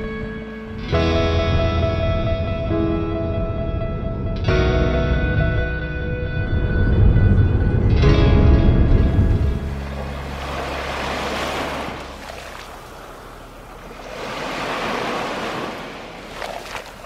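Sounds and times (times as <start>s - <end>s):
waves washing on sandy shore: 9.4s - 17.0s.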